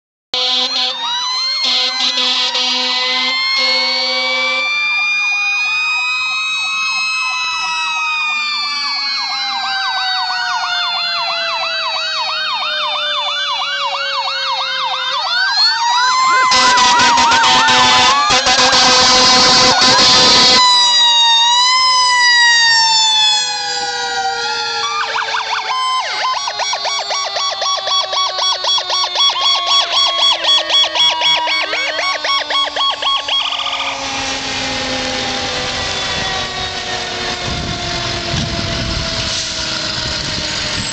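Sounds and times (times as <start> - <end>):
horn blasts: 0.3 - 4.7, 16.2 - 20.6
electronic siren yelp: 0.4 - 40.9
siren wailing: 0.4 - 40.9.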